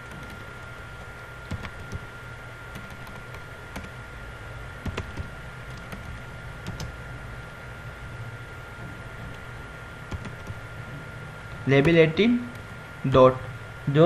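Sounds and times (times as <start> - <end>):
computer keyboard keystrokes: 0.0 - 0.5, 1.5 - 2.1, 2.7 - 4.0, 4.8 - 7.0, 10.1 - 10.6
steady low hum: 0.0 - 14.0.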